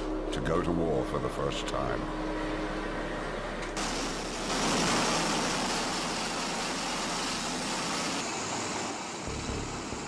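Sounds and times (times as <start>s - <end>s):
aircraft engines and rotors rushing: 3.8s - 10.0s.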